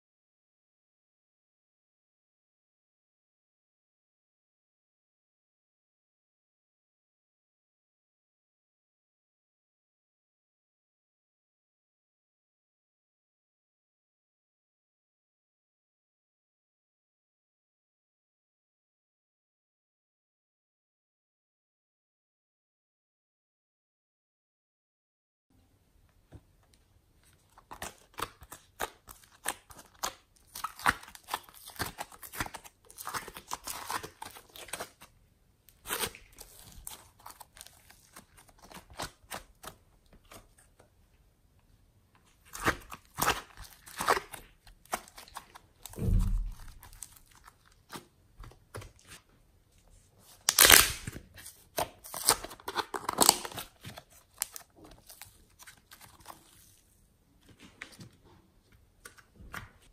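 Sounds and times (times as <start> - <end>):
clay crackling and tearing: 27.4 - 35.1, 35.7 - 40.8, 42.4 - 49.2, 50.2 - 57.0
dull thump: 46.0 - 46.9.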